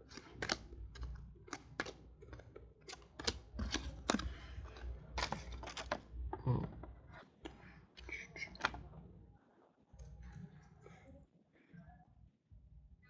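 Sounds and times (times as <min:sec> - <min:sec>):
cards being flipped: 0:00.0 - 0:06.1.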